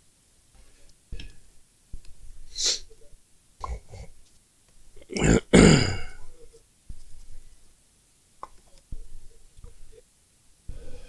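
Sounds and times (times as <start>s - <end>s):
man breathing and sniffing: 2.2s - 3.0s, 10.7s - 11.0s.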